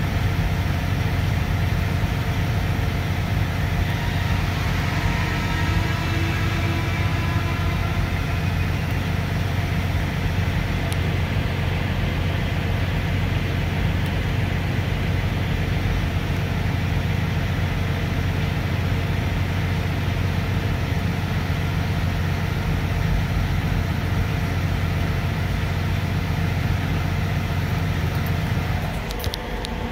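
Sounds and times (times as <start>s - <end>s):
truck engine hum: 0.0s - 29.9s.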